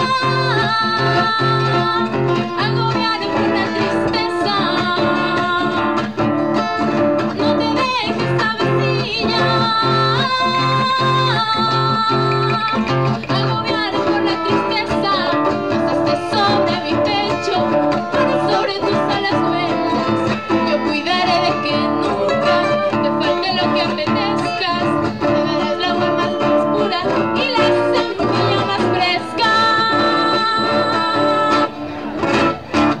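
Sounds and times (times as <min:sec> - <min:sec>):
woman singing: 0:00.0 - 0:31.9
acoustic guitar: 0:00.0 - 0:33.0.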